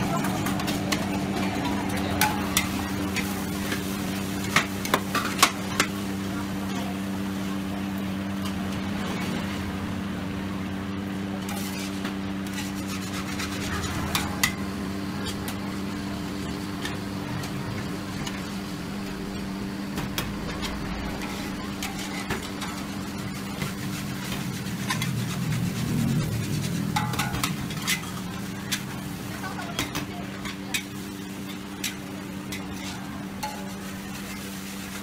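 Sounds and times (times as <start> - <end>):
steady hum: 0.0 - 34.8
gas burner rushing: 0.0 - 35.0
metal spatula scraping a wok: 11.4 - 15.4, 20.5 - 35.0.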